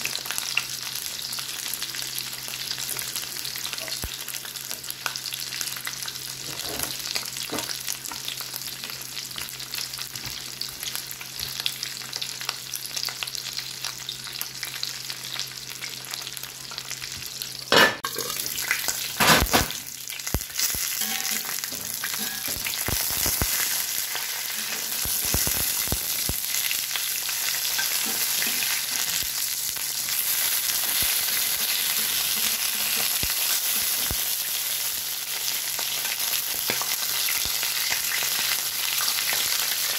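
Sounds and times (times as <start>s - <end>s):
fish frying in oil: 0.0s - 39.9s.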